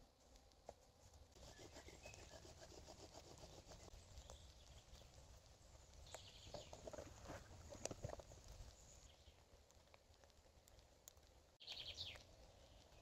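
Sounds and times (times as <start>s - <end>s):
wooden spindle rubbing on wood: 1.4s - 3.9s.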